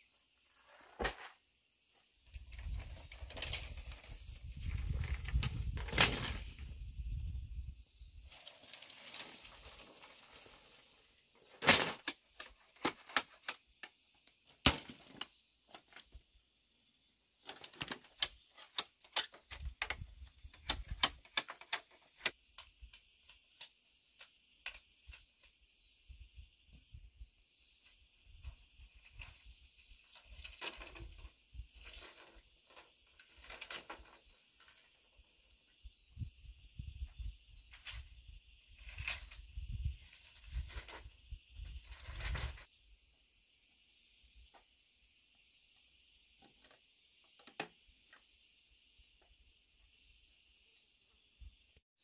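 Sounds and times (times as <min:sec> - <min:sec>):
insect chirring: 0:00.0 - 0:51.8.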